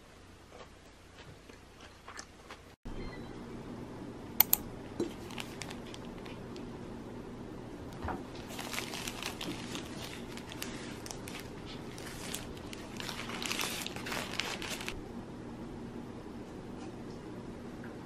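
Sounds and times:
paper wrapper crinkling: 0:05.1 - 0:06.6, 0:08.4 - 0:15.0.

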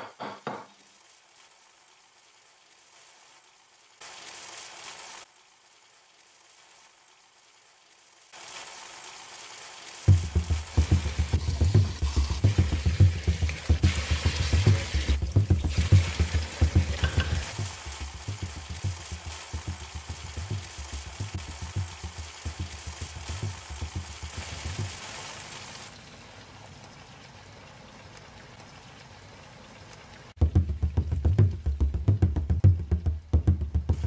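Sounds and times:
faint steady hiss: 0:00.0 - 0:34.0
chicken sizzling in a pan: 0:00.4 - 0:31.8
dull thuds: 0:10.1 - 0:24.9
wooden spatula stirring: 0:10.1 - 0:25.0.

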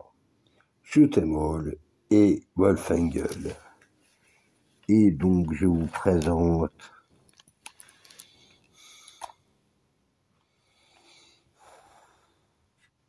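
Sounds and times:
handling clicks and rustles: 0:03.0 - 0:09.4
quiet breathing: 0:03.5 - 0:04.8, 0:06.8 - 0:09.5, 0:10.6 - 0:12.9.

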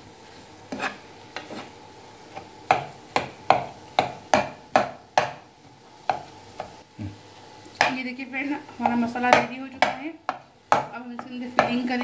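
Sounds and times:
metal spoon scraping frying pan: 0:00.7 - 0:02.5.

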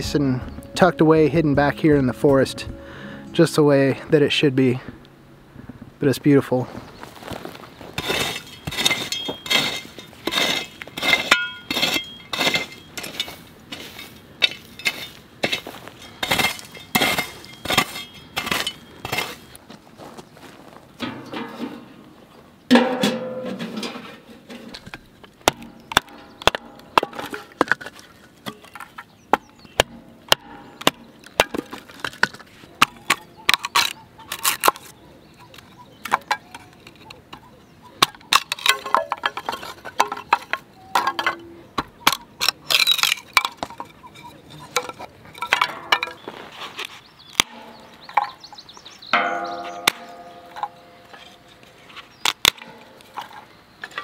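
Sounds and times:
wooden sticks clattering: 0:07.2 - 0:19.6, 0:22.7 - 0:54.0
ringing metal knock: 0:47.4 - 0:48.5, 0:49.1 - 0:51.5.

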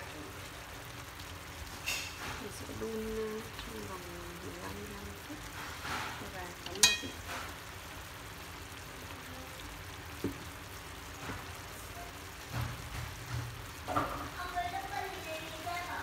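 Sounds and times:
chicken wings sizzling in pan: 0:00.0 - 0:16.0
ringing clink against pan: 0:06.8 - 0:07.2.

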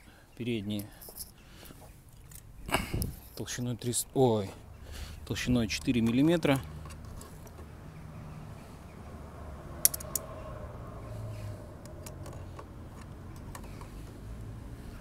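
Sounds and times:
metallic caliper clicks: 0:09.8 - 0:10.3.

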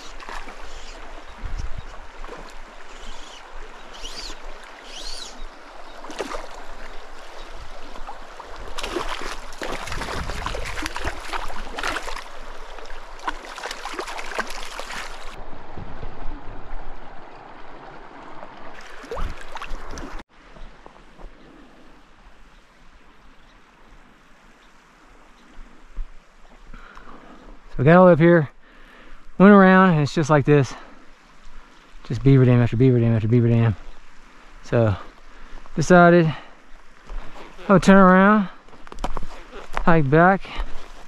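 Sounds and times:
creek water over gravel: 0:00.0 - 0:41.0
fish splashing in water: 0:08.0 - 0:15.4.

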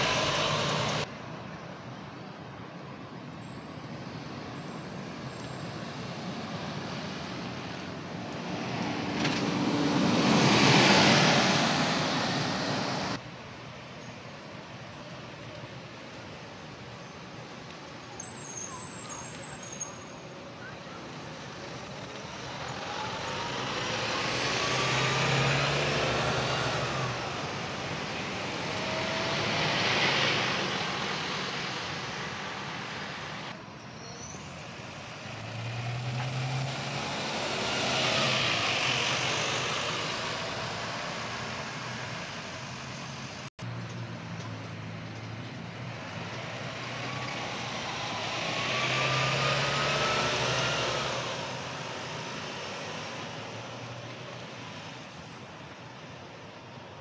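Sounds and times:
engine whine accelerating: 0:00.0 - 0:01.1, 0:46.4 - 0:53.6
heavy road vehicles passing: 0:00.0 - 0:18.1, 0:18.8 - 0:57.0.

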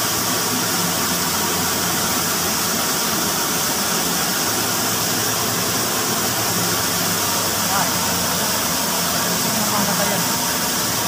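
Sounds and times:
water rushing into tank: 0:00.0 - 0:11.0.

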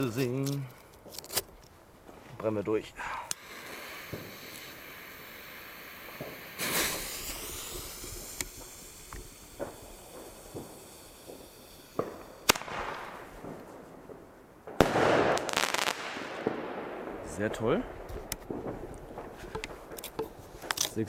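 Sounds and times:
firework launch whoosh: 0:03.5 - 0:13.6
sharp crack: 0:06.0 - 0:21.0
firework bang: 0:06.1 - 0:17.4.

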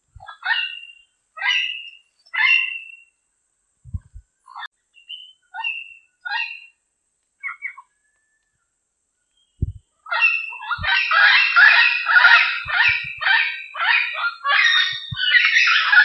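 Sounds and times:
parrot calling: 0:00.2 - 0:03.0, 0:05.1 - 0:06.7, 0:10.1 - 0:16.0
low thumps: 0:03.9 - 0:04.2, 0:09.6 - 0:09.8, 0:12.6 - 0:13.3.

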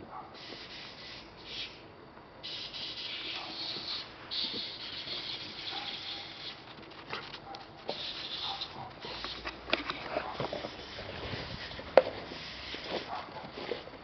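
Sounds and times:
footsteps crunching in snow: 0:10.1 - 0:14.0.

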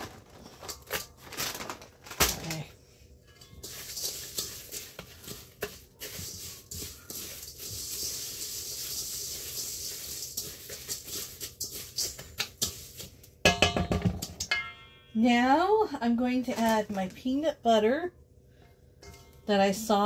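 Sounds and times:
spatula stirring dry granola: 0:03.4 - 0:13.4.

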